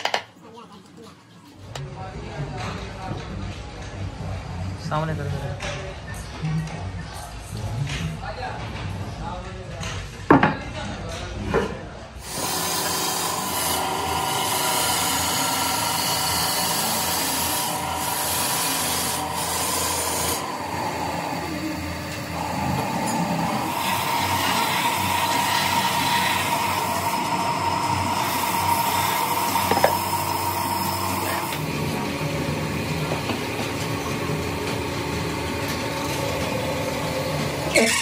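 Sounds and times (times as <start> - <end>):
wood being sanded: 12.2 - 31.6
machine whining: 12.2 - 38.0.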